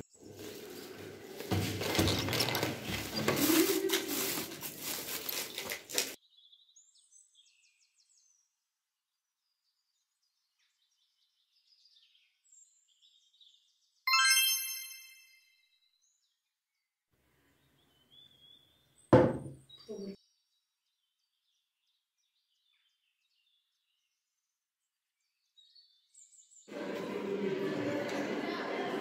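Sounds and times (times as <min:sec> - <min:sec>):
plastic bag rustling: 0:00.2 - 0:06.2
bright chime: 0:14.1 - 0:15.5.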